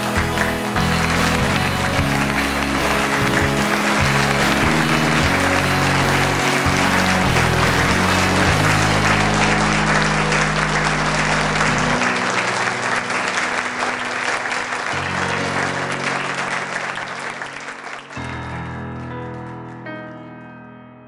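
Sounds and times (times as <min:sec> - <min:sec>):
backing music with bass line: 0:00.0 - 0:13.2
audience applauding: 0:00.0 - 0:20.3.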